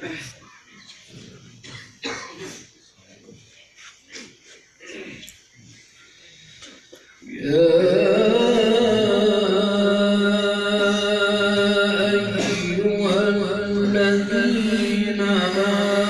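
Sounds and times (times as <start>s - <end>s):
man reciting melodically: 7.2s - 16.0s.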